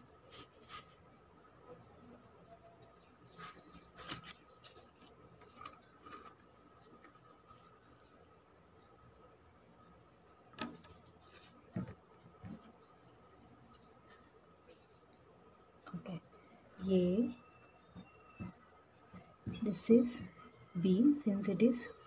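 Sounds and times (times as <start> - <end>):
paper rustling and scraping: 0.2 - 1.0, 3.3 - 8.4
brushes and taps on paper: 10.6 - 12.7.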